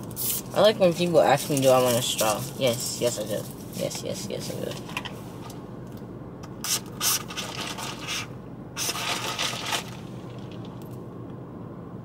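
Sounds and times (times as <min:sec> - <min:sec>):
plastic straw scraping through lid: 0:06.7 - 0:10.0.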